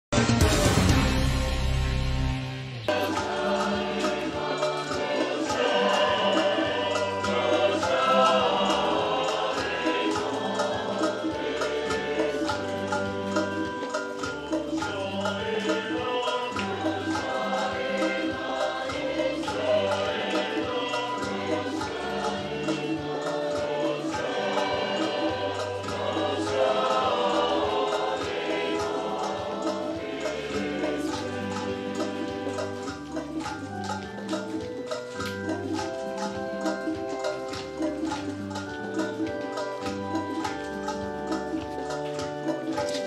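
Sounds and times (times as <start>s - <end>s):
bass notes: 0.1s - 3.6s
instrumental accompaniment: 0.1s - 43.0s
percussion beat: 0.1s - 43.0s
choir singing a hymn: 2.9s - 34.3s.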